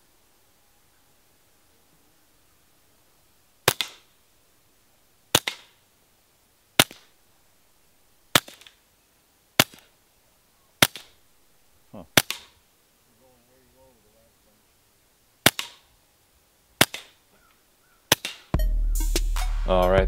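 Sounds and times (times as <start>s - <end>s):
suppressed pistol shots: 3.6s - 4.1s, 5.3s - 5.8s, 6.8s - 7.1s, 8.3s - 8.8s, 9.6s - 9.9s, 10.8s - 11.2s, 12.2s - 12.6s, 15.4s - 15.9s, 16.8s - 17.2s, 18.1s - 18.5s.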